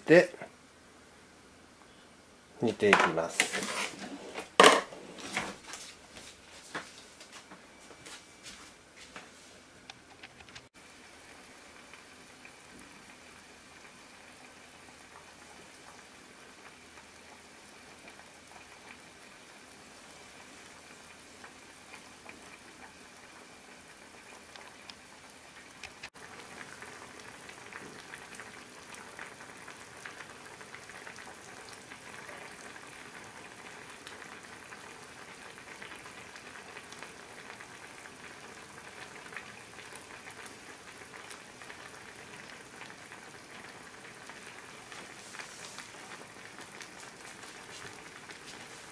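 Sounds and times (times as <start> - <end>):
broth bubbling in saucepan: 10.7 - 48.9.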